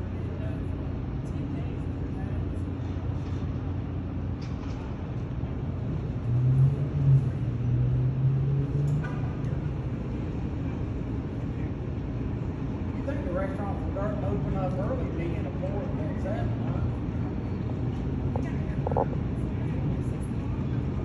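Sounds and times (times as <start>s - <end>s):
ship low rumble: 0.0s - 21.0s
deep drone: 15.7s - 21.0s.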